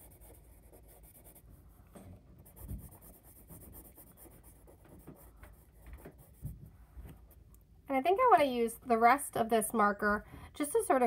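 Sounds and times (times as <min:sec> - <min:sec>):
marker scratching on paper: 0:00.0 - 0:01.6, 0:02.4 - 0:06.6.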